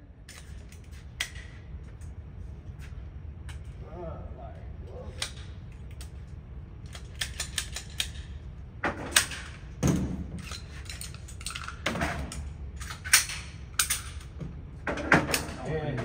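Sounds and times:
metallic clicks and clacks: 0:06.8 - 0:08.4.

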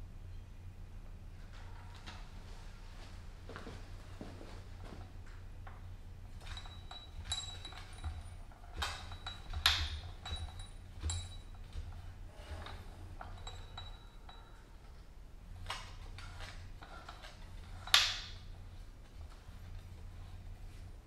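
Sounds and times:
metallic clicks and clinks: 0:05.6 - 0:18.6.

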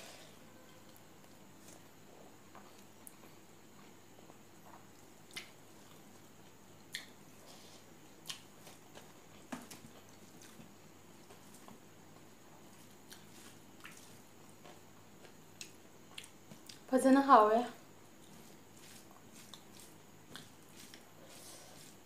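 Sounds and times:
chewing: 0:02.5 - 0:07.2, 0:08.2 - 0:16.9, 0:18.2 - 0:22.0
fingers mixing wet food: 0:08.2 - 0:16.9, 0:18.2 - 0:22.0.

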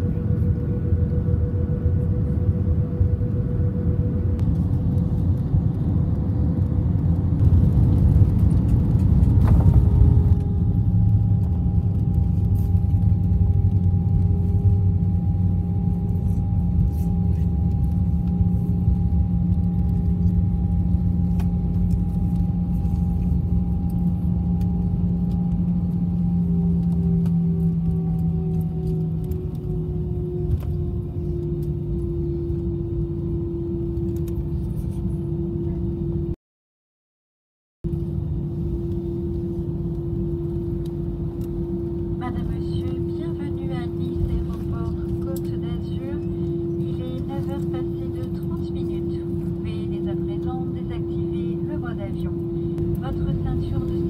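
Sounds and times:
whining engine tone: 0:00.0 - 0:34.4
jet engines and airflow rumble: 0:00.0 - 0:36.4, 0:37.8 - 0:54.0.

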